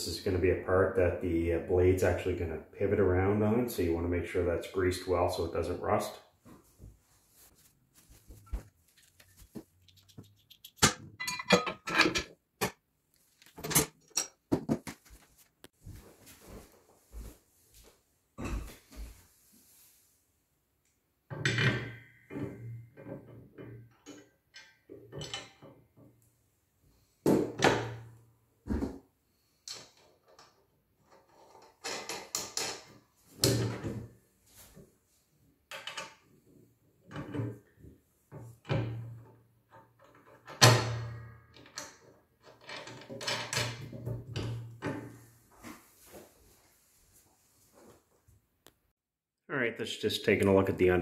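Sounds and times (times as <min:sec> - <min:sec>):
steel parts knocking and clanking: 0:09.9 - 0:12.8.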